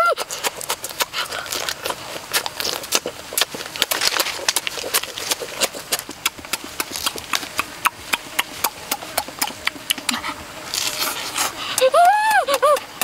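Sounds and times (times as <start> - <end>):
person chewing and lip-smacking: 0.0 - 13.0.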